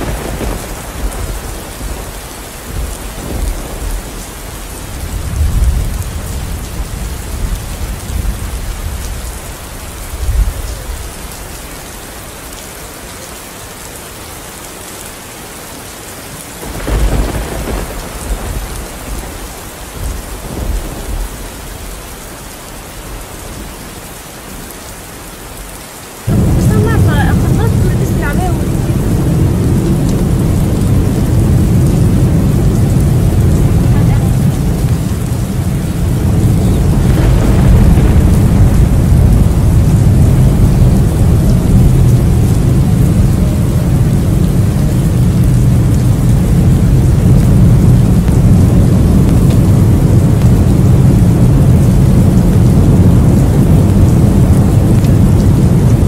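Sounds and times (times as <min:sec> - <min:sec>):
thunder rolling: 0:00.0 - 0:11.4, 0:16.6 - 0:22.1, 0:26.3 - 0:56.0
heavy rain: 0:00.0 - 0:56.0
steady low rumble: 0:26.3 - 0:56.0.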